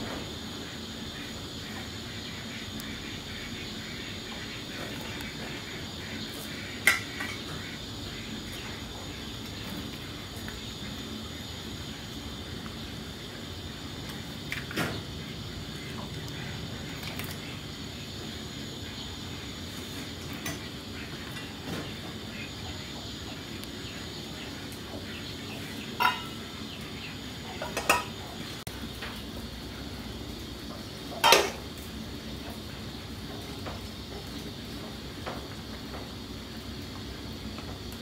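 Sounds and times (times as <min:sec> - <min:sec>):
ladle clinking against metal pot: 0:26.0 - 0:26.4.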